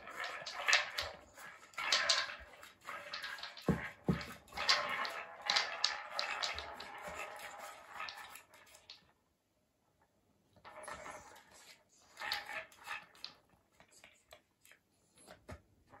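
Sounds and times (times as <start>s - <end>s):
wooden balls clattering on tracks: 0.0s - 9.1s.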